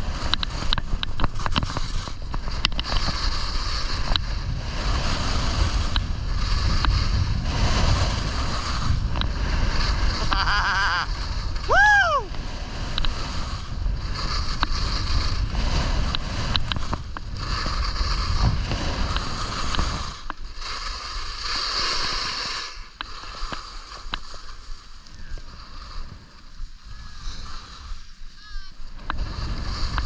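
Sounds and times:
wind buffeting microphone: 0.0 - 20.4
skis scraping over snow: 0.0 - 30.0.

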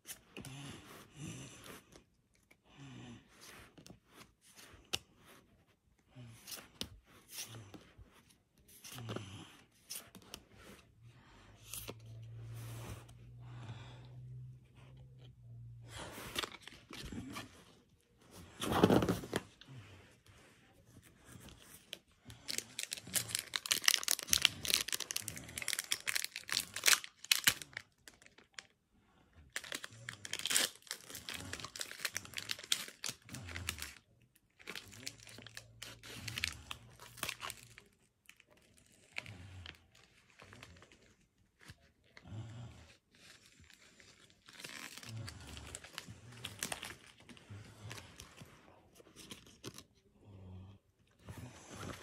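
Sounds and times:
foil wrapper crinkling and tearing: 22.4 - 28.7, 29.5 - 39.2, 43.2 - 47.2.

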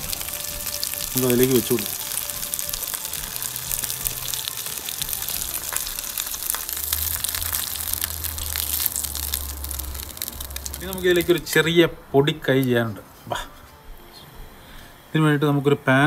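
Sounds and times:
oil sizzling in a frying pan: 0.0 - 11.6.

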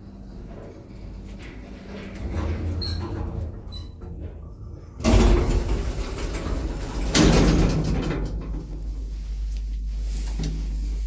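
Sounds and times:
lift door banging open: 5.0 - 8.4.

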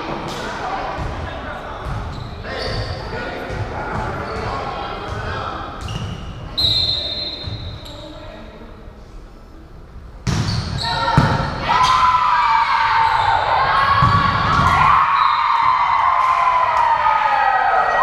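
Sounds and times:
ball thudding in echoing gym: 10.2 - 12.3, 13.7 - 15.1
group shouting and cheering: 10.9 - 18.0.

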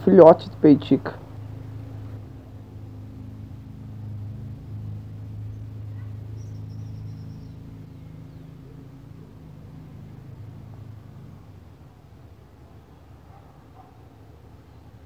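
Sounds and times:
low motor hum: 0.0 - 15.0
faint high bird chirps: 5.4 - 10.3.

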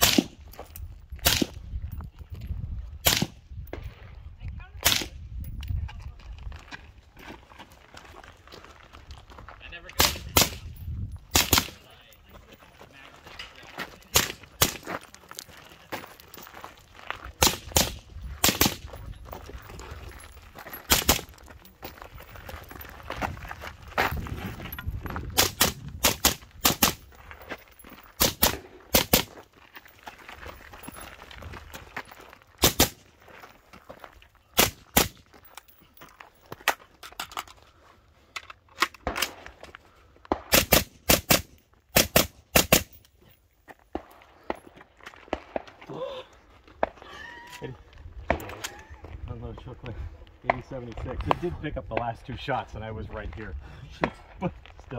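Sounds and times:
rifle shots: 0.0 - 0.4, 1.2 - 1.6, 3.0 - 3.4, 10.0 - 10.6, 11.3 - 11.9, 17.4 - 18.9, 20.9 - 21.3, 25.4 - 27.0, 28.2 - 29.3, 32.6 - 33.1, 34.6 - 35.2, 40.3 - 43.0.

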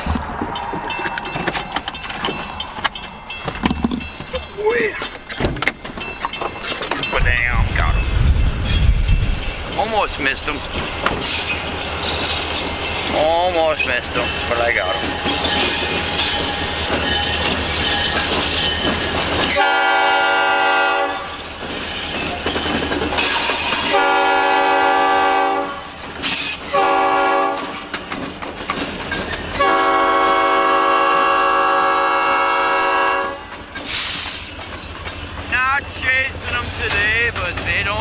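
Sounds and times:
diesel locomotive approaching: 0.0 - 38.0
locomotive air horn blasts: 19.6 - 21.3, 23.8 - 25.9, 26.7 - 27.8, 29.6 - 33.4.

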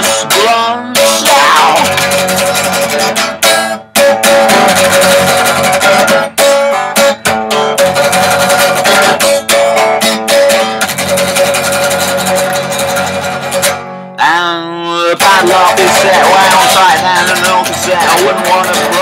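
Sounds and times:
electric guitar strumming chords: 0.0 - 19.0.

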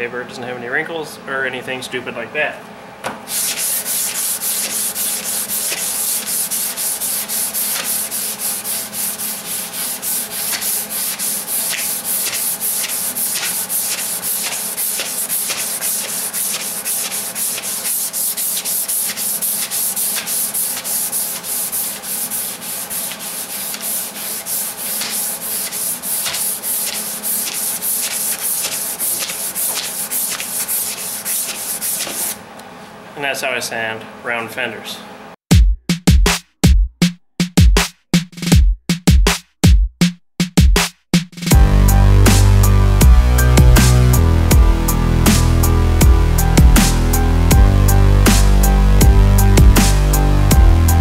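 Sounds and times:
sandpaper rubbing on metal: 3.3 - 32.4.

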